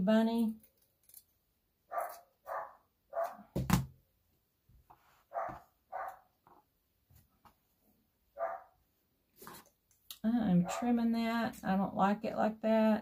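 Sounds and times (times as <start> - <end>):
dog barking: 1.9 - 3.5, 5.3 - 6.3, 8.4 - 8.8.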